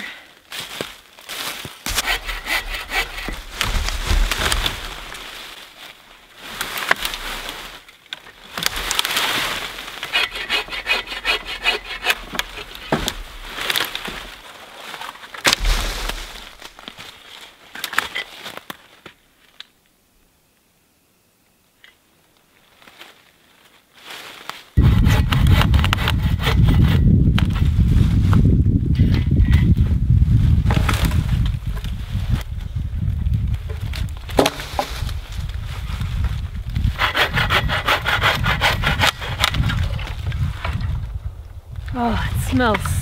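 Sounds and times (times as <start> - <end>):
hand saw rasping through log: 1.9 - 3.6, 10.0 - 13.0, 24.8 - 27.1, 36.9 - 39.7.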